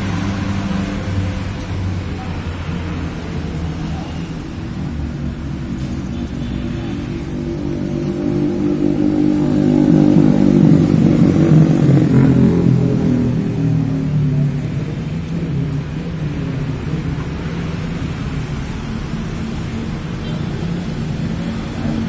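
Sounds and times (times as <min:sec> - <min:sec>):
vehicle engine passing by: 0:04.7 - 0:15.9.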